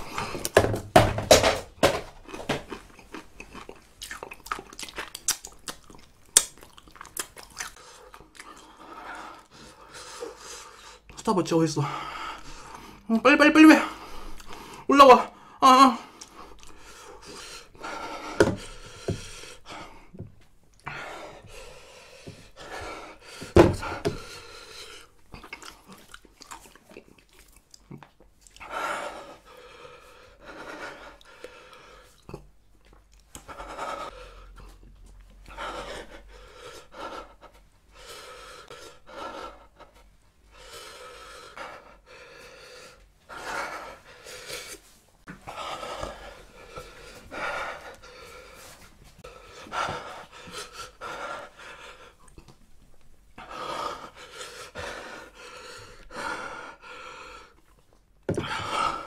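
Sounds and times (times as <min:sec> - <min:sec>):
man panting hard: 0:00.0 - 0:02.0, 0:07.8 - 0:11.1, 0:11.8 - 0:25.2, 0:28.6 - 0:32.2, 0:33.4 - 0:52.3, 0:53.4 - 0:57.7, 0:58.3 - 0:59.0.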